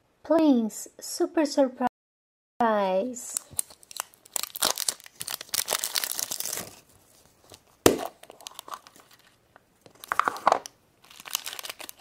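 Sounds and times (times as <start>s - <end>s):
wrapper tearing and crinkling: 3.4s - 12.0s.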